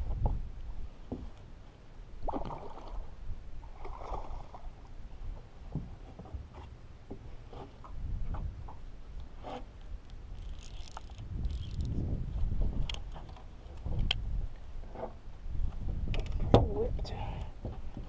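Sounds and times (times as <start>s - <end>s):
faint water sloshing: 0.9s - 11.6s.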